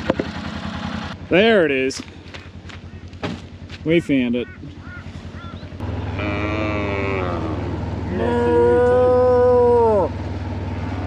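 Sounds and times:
low engine drone: 0.0s - 11.0s
cattle mooing: 4.8s - 10.1s.

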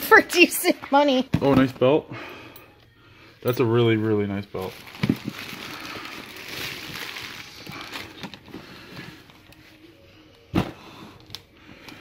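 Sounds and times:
fabric bag being rummaged: 4.6s - 9.6s.

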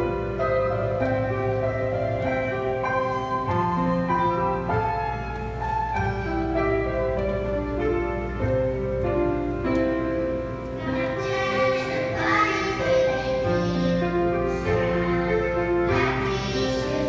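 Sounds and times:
piano accompaniment: 0.0s - 17.0s
children's choir singing: 10.8s - 17.0s.

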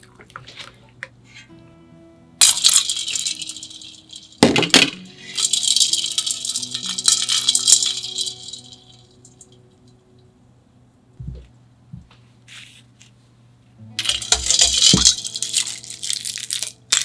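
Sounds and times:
soft background music: 0.0s - 11.3s, 13.7s - 17.0s
ice rattling and clinking: 2.4s - 9.6s, 14.0s - 17.0s.

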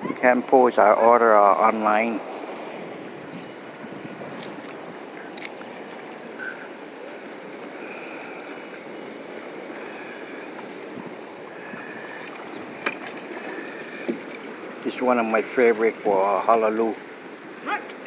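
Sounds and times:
water: 0.0s - 18.0s
wind noise: 1.9s - 6.5s, 10.8s - 13.0s.

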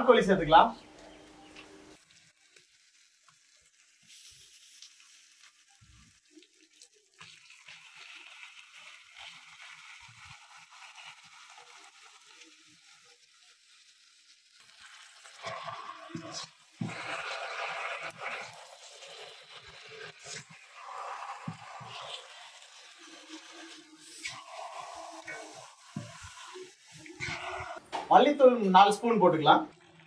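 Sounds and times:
meat sizzling in oil: 2.0s - 28.0s
metal spatula scraping: 15.4s - 27.8s.

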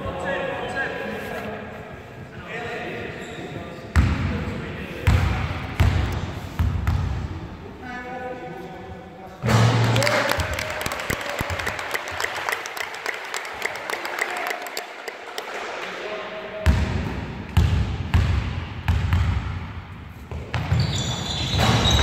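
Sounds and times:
clapping echoing in a hall: 9.7s - 16.3s
basketball bouncing on wooden floor: 17.6s - 19.6s.

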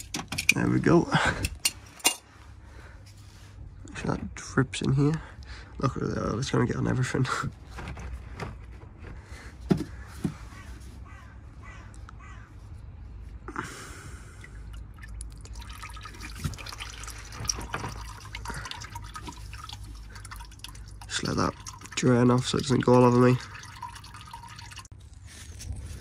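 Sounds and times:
oil dripping into container: 14.4s - 24.9s.

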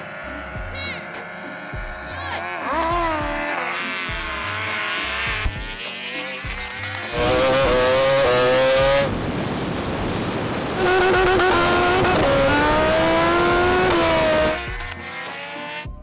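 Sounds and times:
racing motorcycle engines upshifting: 0.0s - 16.0s
rushing noise: 7.1s - 14.5s.

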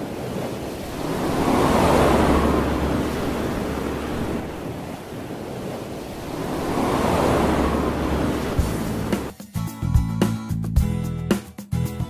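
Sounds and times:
wind rushing over microphone: 0.0s - 9.3s
low road drone: 0.8s - 4.8s, 6.1s - 9.3s.

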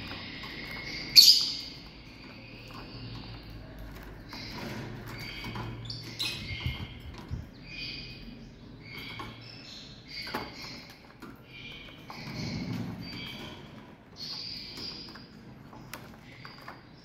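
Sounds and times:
lovebirds chirping: 0.0s - 17.0s.

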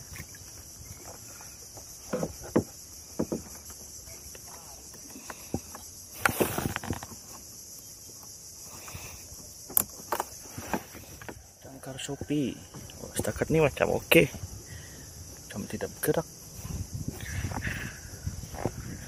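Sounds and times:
high-pitched insect chorus: 0.0s - 19.0s
rustling scrape: 6.2s - 7.3s.

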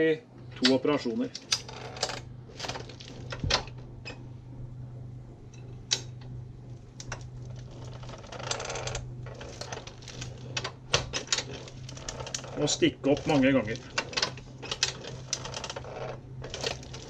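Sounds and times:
steady low hum: 0.0s - 17.0s
machine rattle: 1.4s - 3.8s, 7.0s - 17.0s.

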